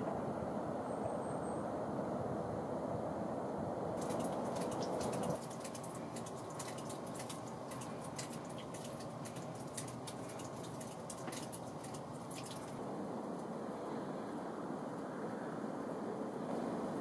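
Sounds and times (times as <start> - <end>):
low background rush: 0.0 - 17.0
water dripping from rock: 4.0 - 12.8.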